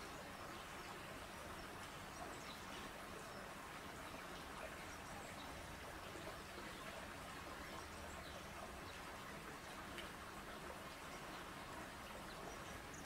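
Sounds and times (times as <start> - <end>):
faint hiss of moving water: 0.0 - 13.0
small ticks and chirps: 10.9 - 13.0.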